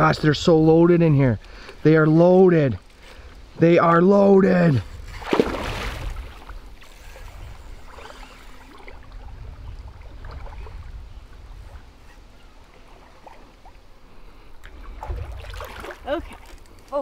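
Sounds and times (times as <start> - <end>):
steady low rumble: 0.0 - 13.0
river current flowing and lapping: 0.0 - 17.0.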